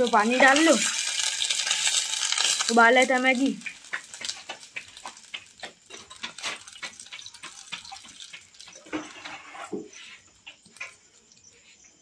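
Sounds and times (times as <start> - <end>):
water pouring into metal pot: 0.0 - 9.0.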